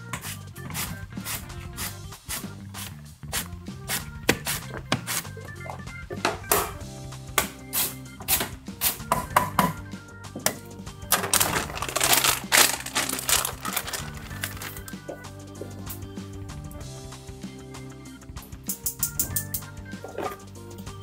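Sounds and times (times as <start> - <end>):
background music: 0.0 - 21.0
packets rustling: 11.1 - 15.0.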